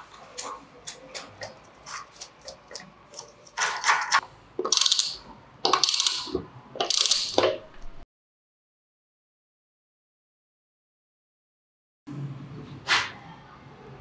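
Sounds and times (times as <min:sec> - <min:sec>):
socket ratchet clicking: 0:04.6 - 0:07.4.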